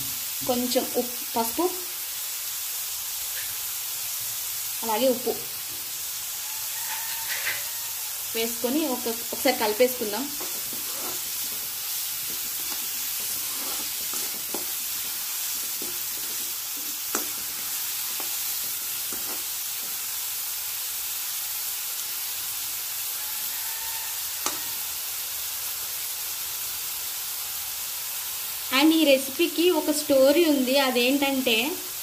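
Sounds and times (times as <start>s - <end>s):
onions sizzling in oil: 0.0s - 32.0s
spatula scraping the pan: 6.4s - 20.1s
spatula tapping on pan: 14.1s - 14.7s, 15.6s - 19.9s.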